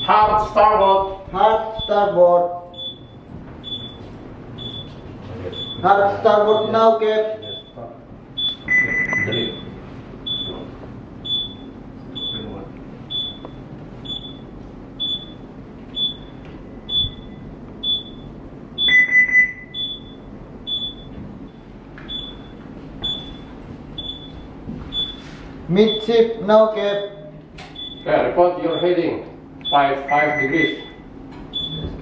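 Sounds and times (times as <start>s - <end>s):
long low alarm tone: 0.0s - 4.9s, 5.5s - 7.8s, 8.4s - 10.6s, 13.1s - 25.2s
electronic alarm beeping: 0.0s - 12.5s, 13.1s - 31.9s.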